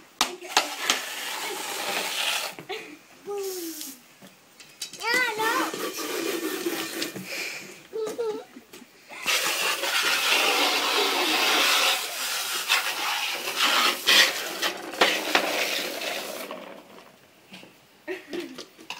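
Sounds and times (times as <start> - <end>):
hose spray hissing: 0.4 - 2.6, 3.3 - 4.0, 5.2 - 7.7, 9.2 - 16.5.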